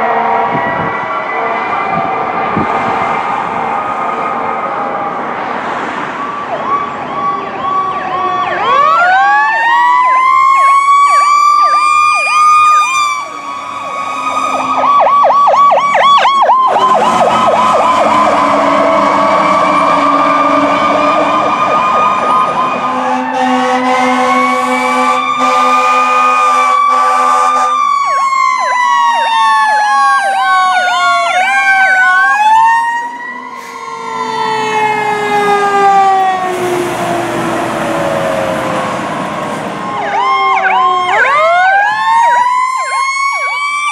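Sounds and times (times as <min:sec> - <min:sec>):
air horn blast: 0:00.0 - 0:02.0, 0:13.1 - 0:15.0, 0:16.7 - 0:21.4, 0:22.8 - 0:27.8
emergency sirens wailing and yelping: 0:00.0 - 0:43.9.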